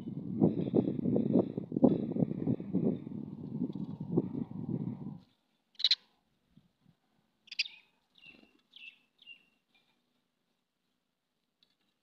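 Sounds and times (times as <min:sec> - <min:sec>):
sparrows chirping: 0:05.7 - 0:06.1, 0:07.4 - 0:09.9.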